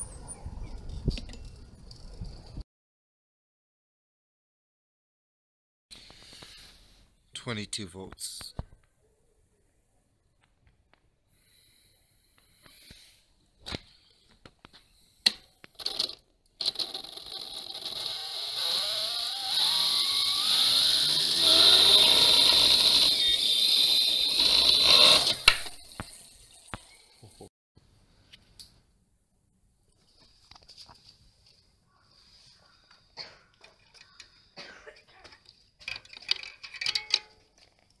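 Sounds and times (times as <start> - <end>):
electric motor whining: 17.4 - 25.5.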